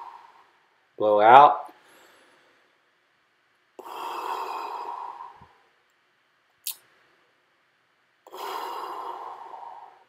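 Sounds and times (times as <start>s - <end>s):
man exhaling: 8.3s - 10.0s.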